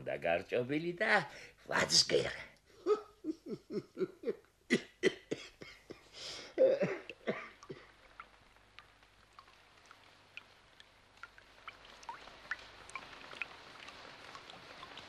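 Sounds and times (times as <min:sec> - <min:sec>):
person coughing: 0:03.8 - 0:07.9.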